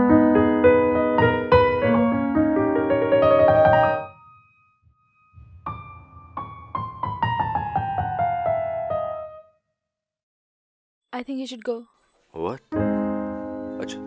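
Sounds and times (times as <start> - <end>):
piano music: 0.0 - 9.6, 12.7 - 14.0.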